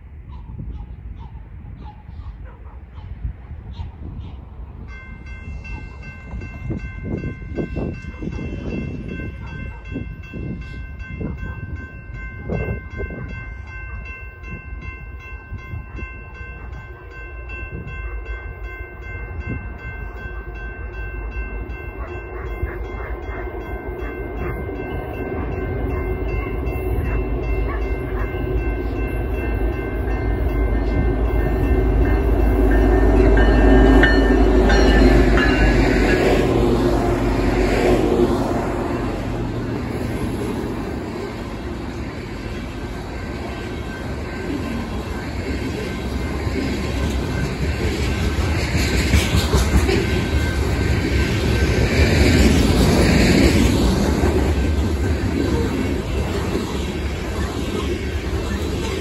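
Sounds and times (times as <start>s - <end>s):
train rolling: 3.7s - 59.0s
crossing warning bell ringing: 4.7s - 59.0s
locomotive engine rumble: 16.0s - 59.0s.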